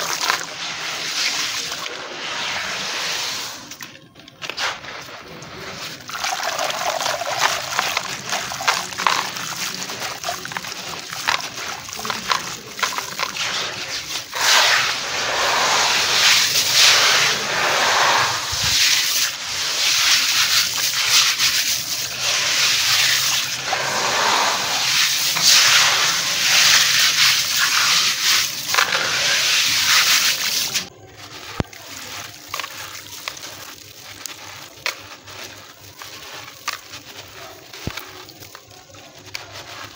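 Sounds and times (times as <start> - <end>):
grit splashing into water: 0.0 - 39.9
stone and sand crunching: 4.1 - 19.3, 20.0 - 39.9.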